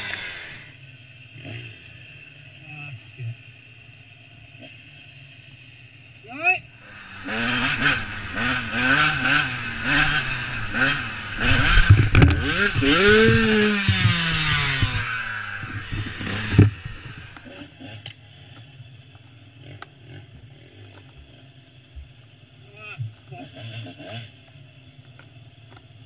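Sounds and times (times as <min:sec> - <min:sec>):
dirt bike engine revving: 0:00.0 - 0:02.6, 0:06.7 - 0:18.5, 0:19.5 - 0:21.6, 0:23.3 - 0:24.5.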